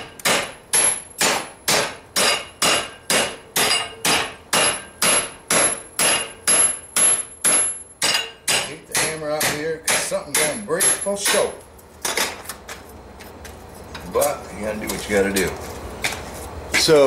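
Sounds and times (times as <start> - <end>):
hammer striking metal on vise: 0.0 - 12.4.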